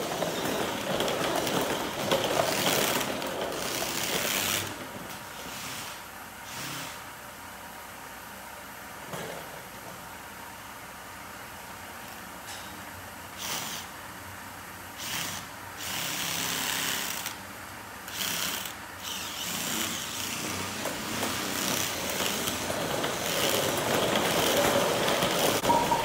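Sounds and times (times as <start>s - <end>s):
cordless drill running: 18.1s - 20.6s.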